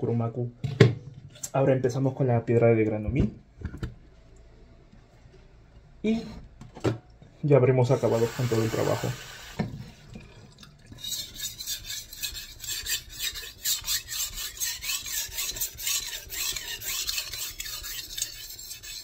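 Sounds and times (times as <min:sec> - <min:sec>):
knife rasping on whetstone: 0:11.0 - 0:19.0.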